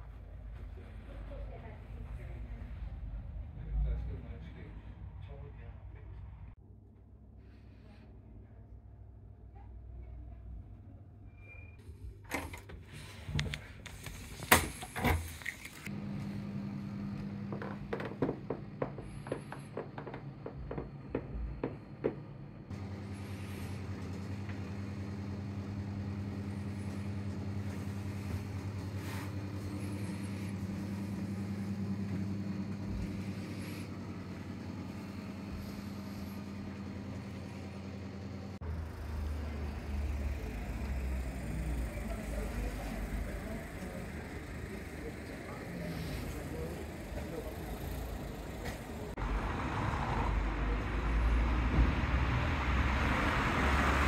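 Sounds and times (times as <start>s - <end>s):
steady low hum: 15.9s - 49.2s.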